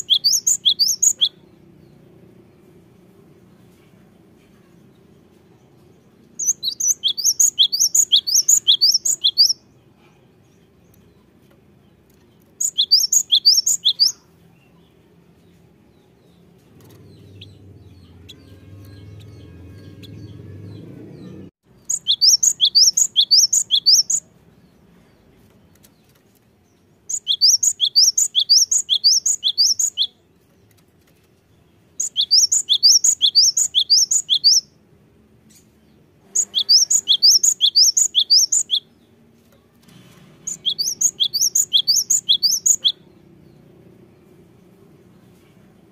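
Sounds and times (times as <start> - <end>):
bird singing high-pitched phrase: 0.0 - 1.8, 6.4 - 9.8, 12.6 - 14.9, 17.0 - 24.3, 27.1 - 30.2, 32.0 - 34.8, 36.2 - 39.1, 40.5 - 43.3.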